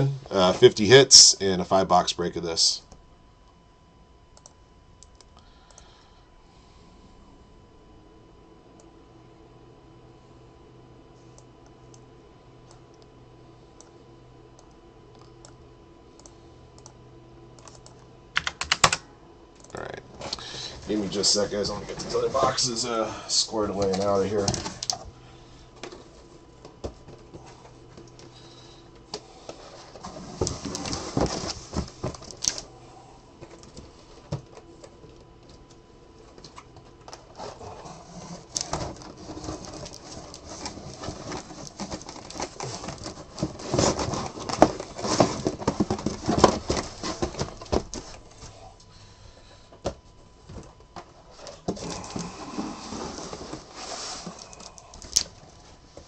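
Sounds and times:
cardboard boxes knocking and scraping: 38.7s - 48.2s.

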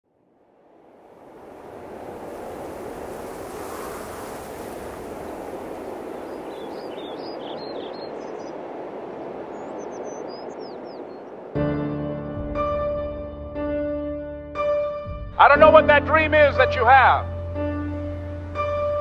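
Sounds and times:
wind through vegetation: 0.0s - 12.4s
small birds chirping: 3.6s - 11.5s.

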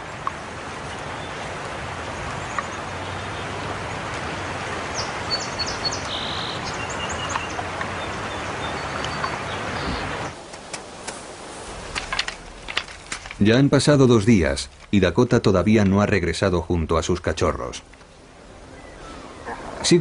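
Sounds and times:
river flowing over stones: 0.0s - 16.2s
high bird chirps: 5.0s - 10.1s.

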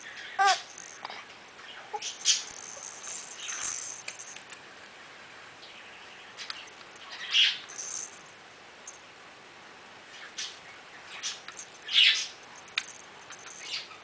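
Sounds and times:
soft toy rattle shaking: 0.0s - 4.6s, 6.6s - 9.1s, 11.3s - 14.0s.

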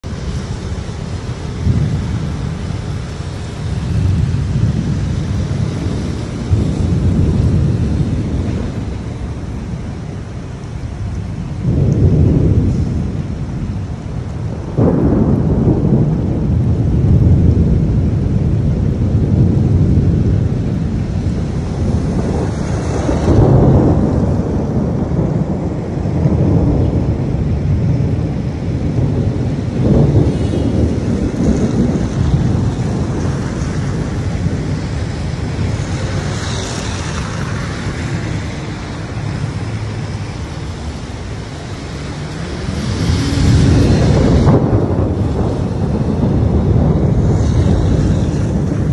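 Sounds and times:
rolling thunder: 0.0s - 48.9s
steady rain: 0.0s - 48.9s.

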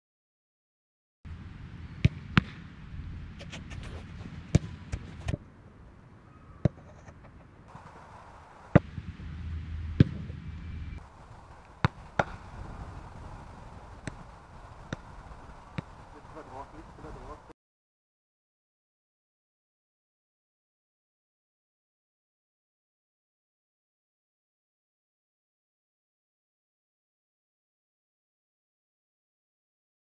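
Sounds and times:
low rumble: 7.7s - 17.5s
football being kicked: 10.0s - 10.3s, 11.8s - 12.4s.

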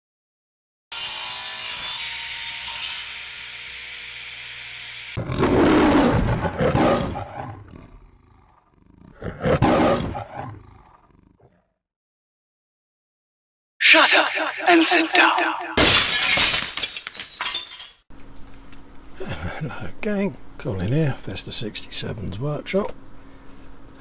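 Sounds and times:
lion roars: 5.2s - 11.8s.

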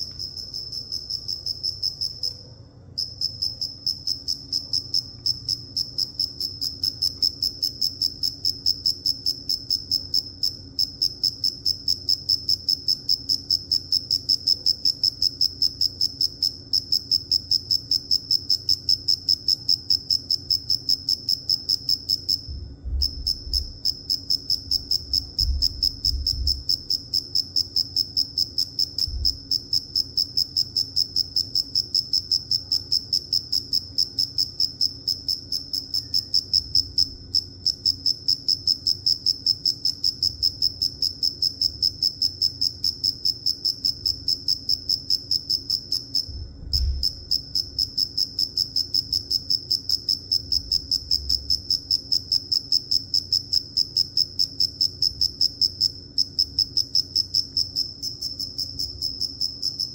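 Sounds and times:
cricket chirping: 0.0s - 59.9s
low bump: 22.5s - 23.8s, 25.0s - 26.9s, 46.3s - 47.8s.

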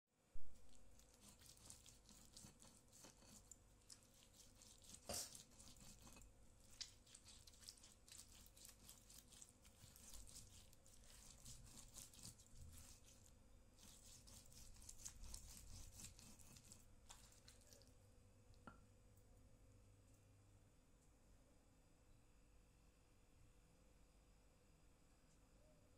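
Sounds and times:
stone pestle grinding in mortar: 0.9s - 17.5s.

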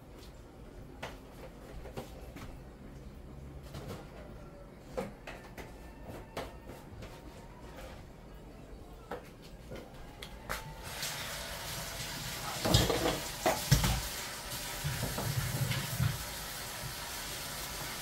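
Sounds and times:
tap water running into a sink: 10.8s - 18.0s
dishes clattering in a sink: 12.3s - 16.4s.

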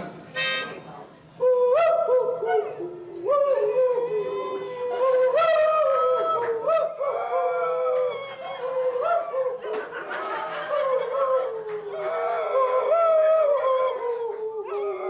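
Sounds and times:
harmonica playing: 0.0s - 1.0s
dog howling: 12.0s - 15.0s.

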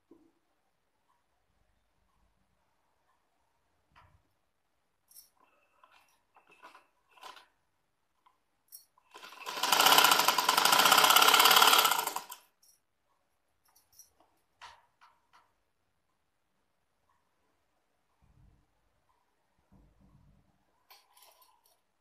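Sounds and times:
sewing machine stitching: 5.4s - 7.6s, 9.0s - 12.4s.

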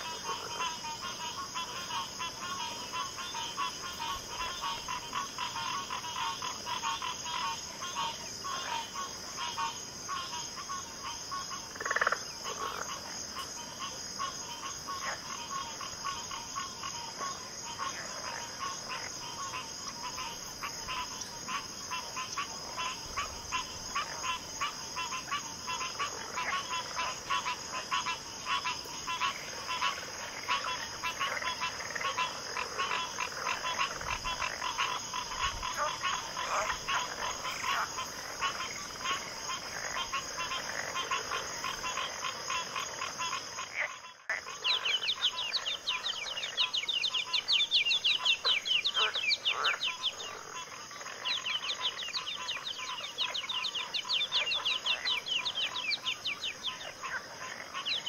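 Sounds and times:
chorus of frogs croaking: 0.0s - 58.0s.

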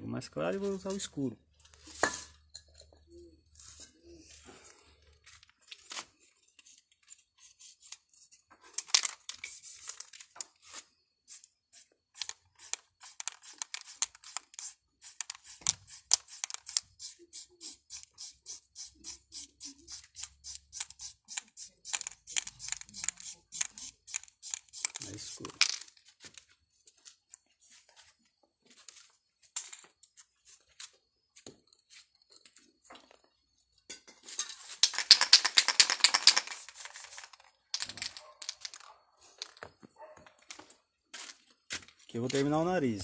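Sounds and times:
spray paint can hissing: 7.4s - 8.0s, 9.4s - 10.1s, 11.3s - 25.6s, 34.9s - 37.4s.

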